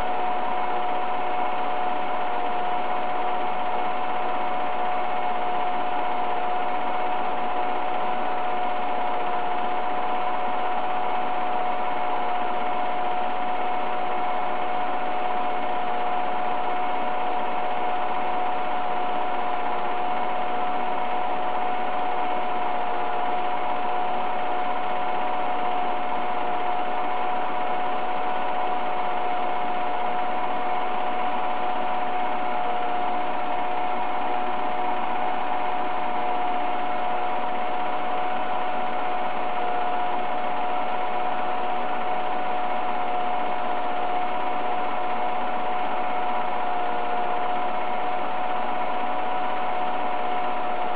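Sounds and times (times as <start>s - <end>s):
film projector whirring: 0.0s - 50.9s.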